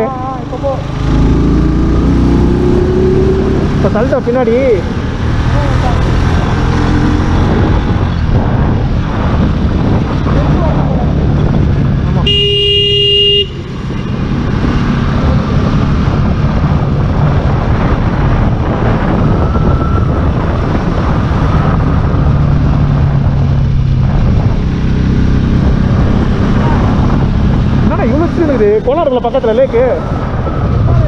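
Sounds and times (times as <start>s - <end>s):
wind rushing on microphone: 0.0s - 31.0s
vehicle horn: 12.2s - 13.7s.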